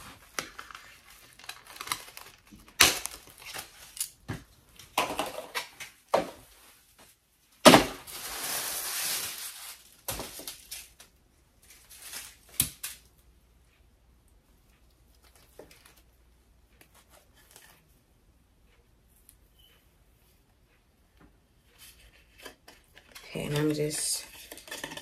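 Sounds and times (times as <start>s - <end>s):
packaging rustling and crinkling: 0.0s - 4.2s, 7.9s - 13.0s.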